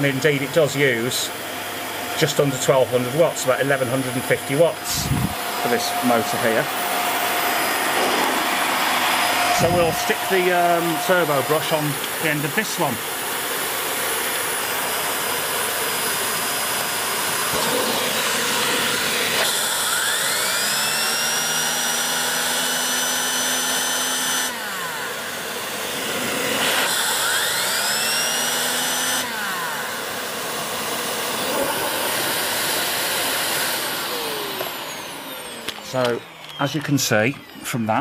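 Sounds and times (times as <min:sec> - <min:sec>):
vacuum cleaner running: 0:00.0 - 0:38.0
turbo brush whine: 0:02.1 - 0:20.7, 0:30.8 - 0:38.0.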